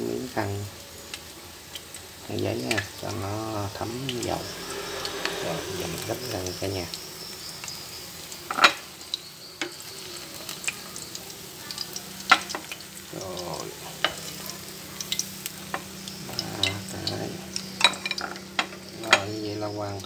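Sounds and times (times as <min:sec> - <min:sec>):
fritters sizzling in oil: 0:00.0 - 0:20.0
utensil clicking on pan: 0:08.4 - 0:19.3.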